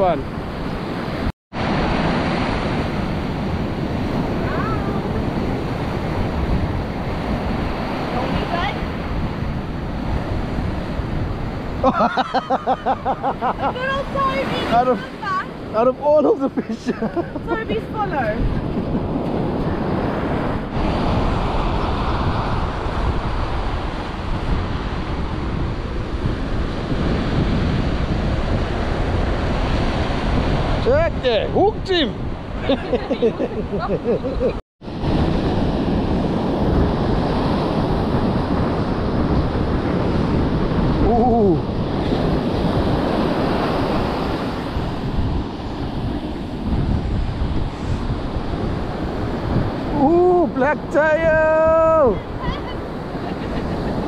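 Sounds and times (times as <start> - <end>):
ocean surf breaking on beach: 0.0 - 54.0
wind buffeting microphone: 0.0 - 54.0
surf breaking on rocks: 1.6 - 18.4.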